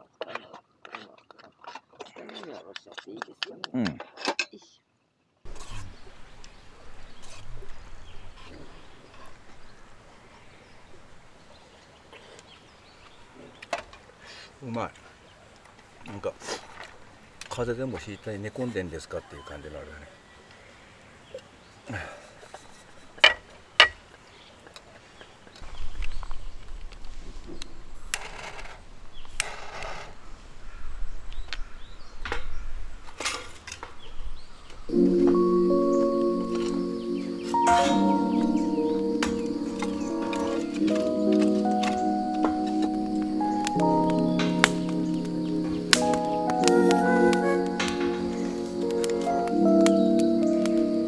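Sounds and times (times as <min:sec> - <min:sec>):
quiet outdoor ambience: 0:00.0 - 0:51.0
fire starter rasping scrapes: 0:05.5 - 0:06.1, 0:28.1 - 0:30.2.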